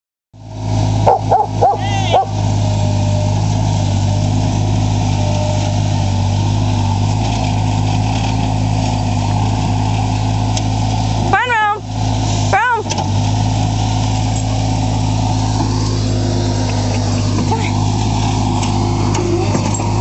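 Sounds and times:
loader engine running: 0:00.4 - 0:20.0
dog barking: 0:01.0 - 0:02.4.

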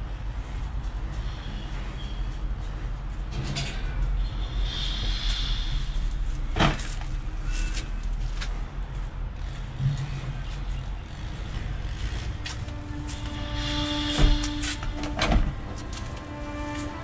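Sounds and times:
vehicle engine rumble: 0:00.0 - 0:17.0.

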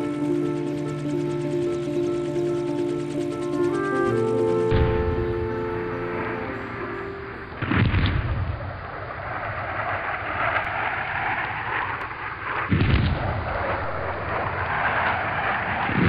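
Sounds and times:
steady noisy wash: 0:00.0 - 0:07.7
explosion booms: 0:07.6 - 0:09.4, 0:12.4 - 0:16.0.

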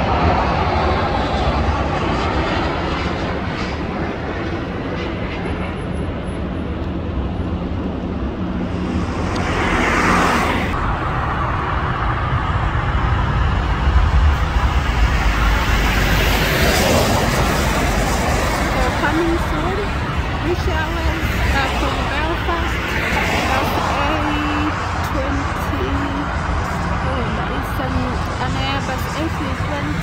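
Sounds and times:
jet airliner engine noise: 0:00.0 - 0:30.0
road traffic: 0:00.0 - 0:30.0.

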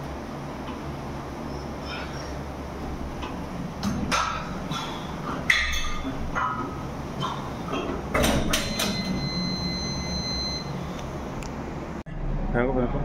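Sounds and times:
steady low hum: 0:00.0 - 0:13.0
metal gym equipment clanking: 0:03.2 - 0:09.5.

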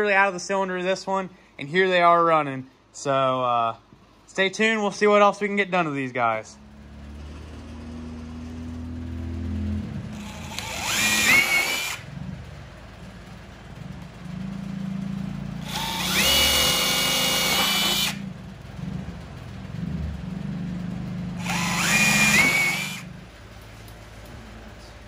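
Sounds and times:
cordless drill whining through plastic: 0:10.2 - 0:12.0, 0:15.6 - 0:18.2, 0:21.4 - 0:23.1.

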